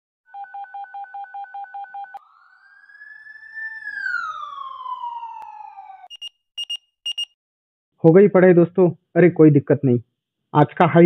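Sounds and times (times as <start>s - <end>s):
descending whistling tone: 0.3s - 6.1s
rapid two-tone electronic beeping: 6.1s - 7.3s.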